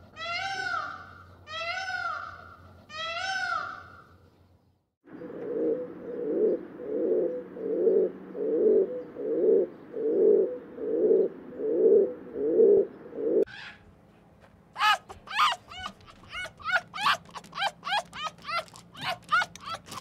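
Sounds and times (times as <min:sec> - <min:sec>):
low cooing calls: 0:05.1 - 0:13.8, 0:14.8 - 0:20.0.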